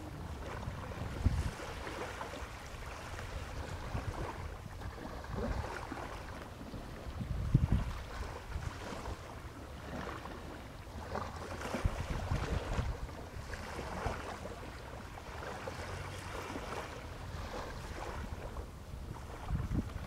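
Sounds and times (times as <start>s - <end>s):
low boat engine: 0.0s - 20.0s
water on open sea: 0.0s - 20.0s
wind buffeting microphone: 0.0s - 20.0s.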